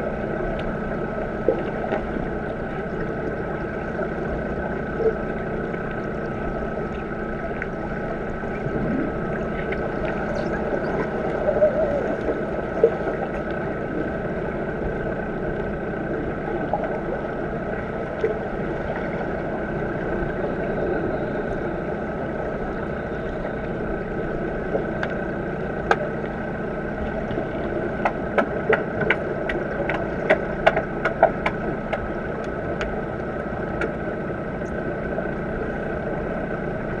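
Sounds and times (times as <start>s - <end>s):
faint steady tones: 0.0s - 28.2s
underwater hum and rush: 0.0s - 37.0s
sharp clicks and knocks underwater: 0.5s - 20.5s, 24.6s - 35.4s.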